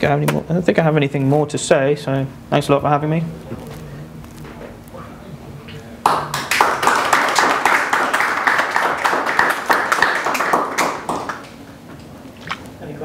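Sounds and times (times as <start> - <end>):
audience applauding: 6.0 - 11.6.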